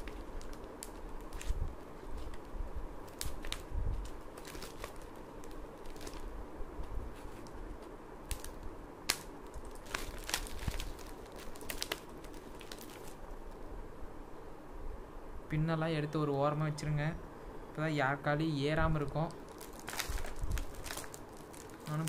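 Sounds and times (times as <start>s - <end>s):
parcel packet crinkling: 0.0s - 6.4s, 8.2s - 13.3s, 18.9s - 22.0s.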